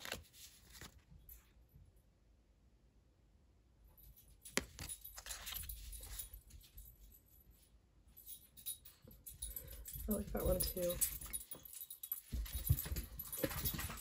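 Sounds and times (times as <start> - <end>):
cards rustling and sliding: 0.0 - 1.1, 4.6 - 6.2.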